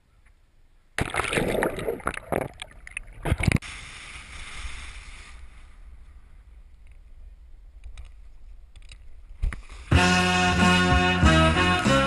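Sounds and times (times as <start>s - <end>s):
water splashing and sloshing: 1.0s - 3.7s
hiss: 3.6s - 5.8s.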